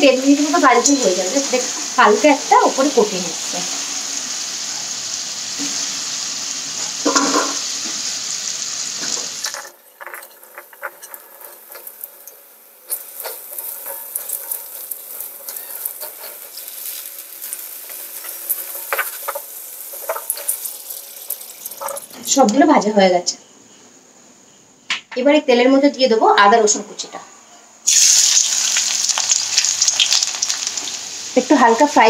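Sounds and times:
food sizzling in hot oil: 0.0s - 22.6s, 27.8s - 32.0s
oil crackling and popping: 3.8s - 22.5s, 27.9s - 31.5s
metal spatula scraping: 12.9s - 22.3s.

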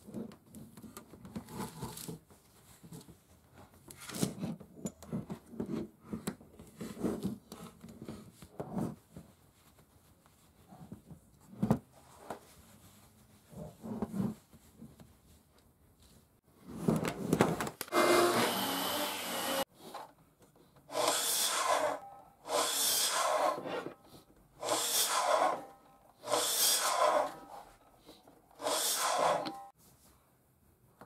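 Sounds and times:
miter saw cutting wood: 17.9s - 19.7s, 20.9s - 23.8s, 24.6s - 27.6s, 28.6s - 29.7s.

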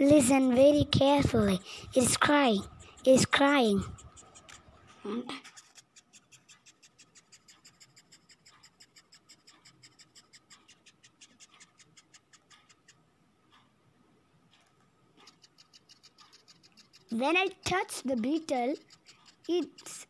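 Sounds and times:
beetle scratchy chirps: 1.2s - 4.8s, 5.4s - 13.0s, 15.2s - 20.0s.

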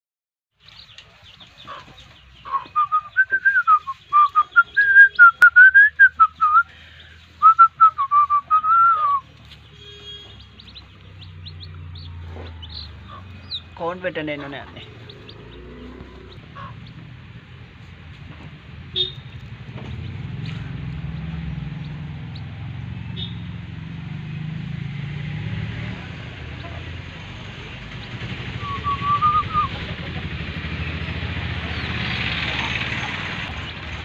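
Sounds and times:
chicks peeping: 0.6s - 5.5s, 8.7s - 18.0s, 19.2s - 22.6s, 31.6s - 34.0s
vehicle engine running: 0.6s - 34.0s.

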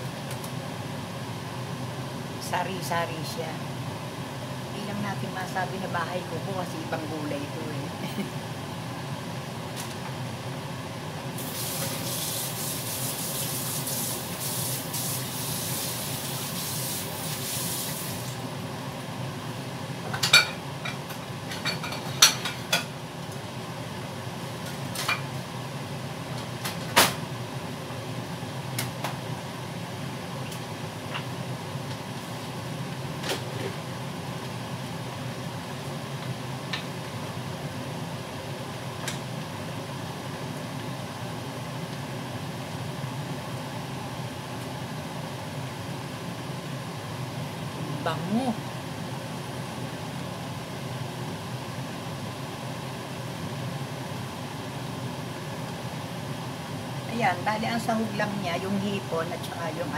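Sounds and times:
kitchen tap running: 11.4s - 18.4s.

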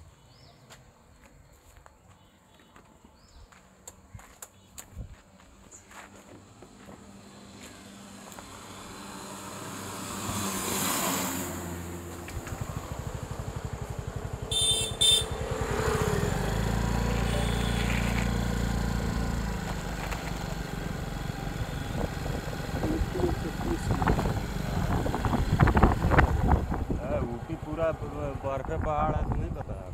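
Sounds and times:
heavy vehicle rumbling past: 7.4s - 28.8s
motorcycle engine puttering by: 7.7s - 29.2s
vehicle horn short beeps: 14.5s - 15.5s, 17.1s - 18.3s.

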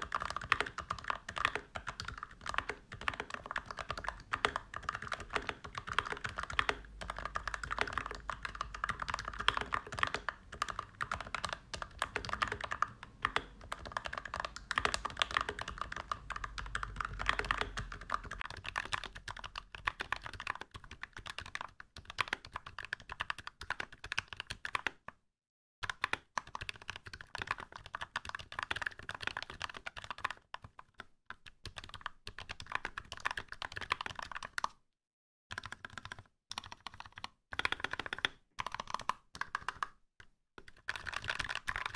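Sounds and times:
mechanical keyboard typing: 0.0s - 25.2s, 25.8s - 34.8s, 35.5s - 40.0s, 40.6s - 41.9s.

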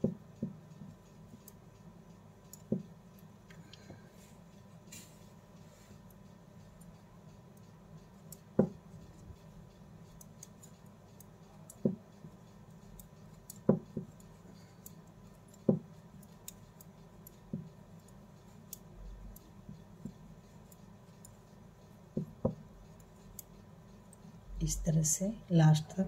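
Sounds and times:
knitting needles clicking: 0.0s - 3.8s, 6.1s - 24.6s.

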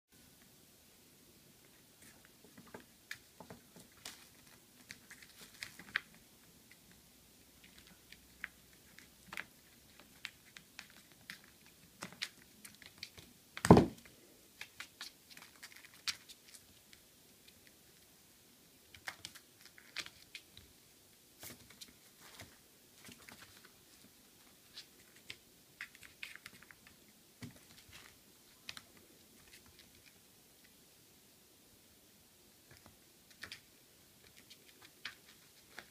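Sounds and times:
loud thump: 13.7s - 14.0s.

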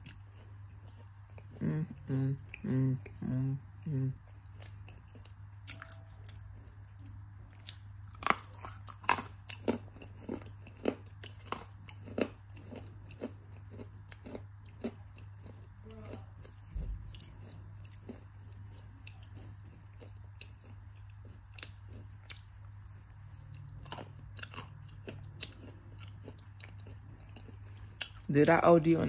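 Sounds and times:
crunching bites and chewing: 0.0s - 1.8s, 4.2s - 28.3s.

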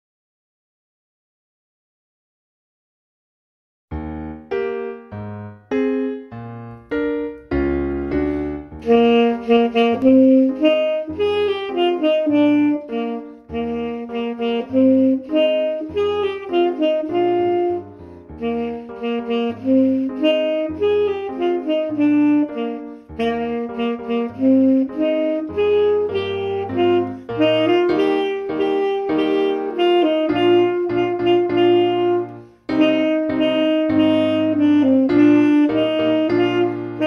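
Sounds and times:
bass line: 3.9s - 12.8s
piano accompaniment: 3.9s - 37.0s
tenor saxophone jazz melody: 4.0s - 37.0s.

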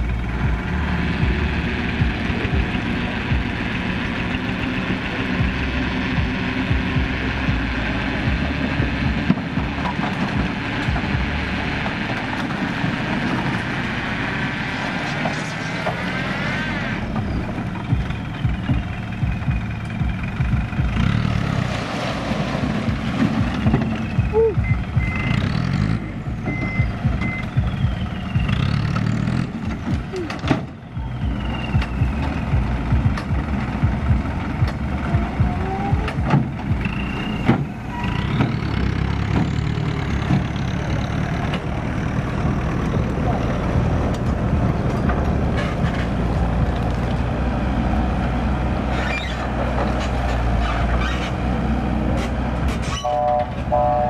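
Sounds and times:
diesel engine running: 0.0s - 54.0s
soil and rock sliding: 21.2s - 26.0s
short beeps: 24.4s - 25.4s, 26.5s - 27.5s.

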